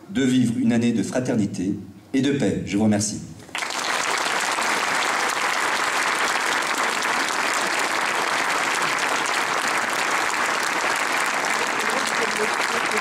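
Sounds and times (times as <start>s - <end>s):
crowd applauding: 3.5s - 13.0s.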